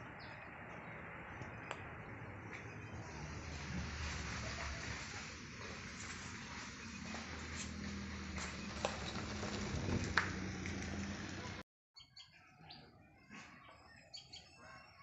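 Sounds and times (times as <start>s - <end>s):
small birds chirping: 12.0s - 15.0s.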